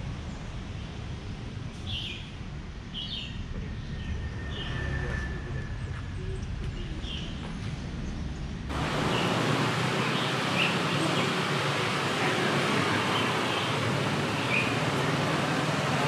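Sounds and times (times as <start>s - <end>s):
outdoor background noise: 0.0s - 16.0s
bird chirps: 13.0s - 15.0s.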